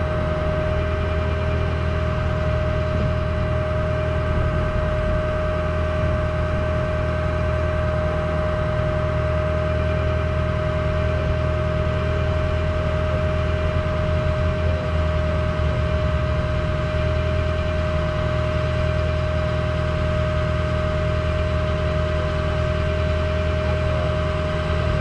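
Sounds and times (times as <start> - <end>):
constant whine: 0.0 - 25.0
truck engine idling: 0.0 - 25.0.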